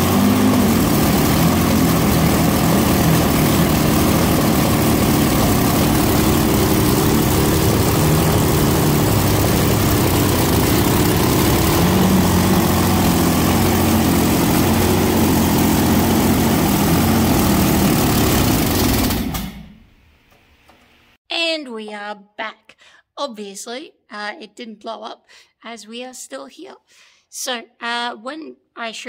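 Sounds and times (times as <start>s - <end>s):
large engine running: 0.0s - 19.8s.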